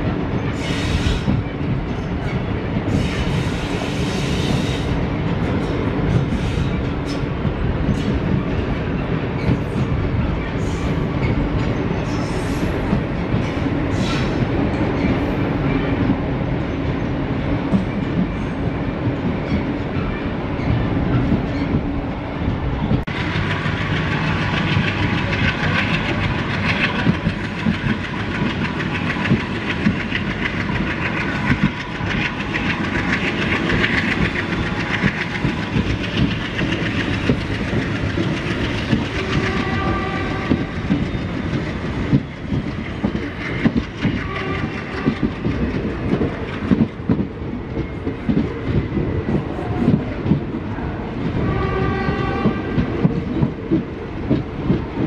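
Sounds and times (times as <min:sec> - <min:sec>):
train wheels clattering over rail joints: 0:22.9 - 0:50.6.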